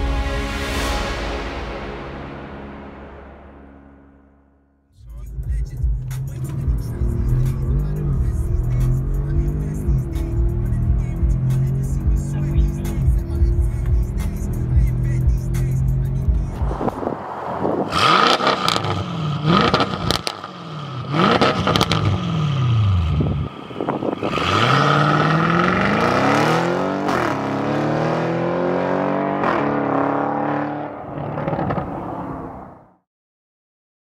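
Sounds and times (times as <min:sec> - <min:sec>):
car engine revving: 0:05.0 - 0:32.9
exhaust cracks: 0:05.2 - 0:27.4, 0:31.1 - 0:32.1
car accelerating through gears: 0:06.0 - 0:32.7.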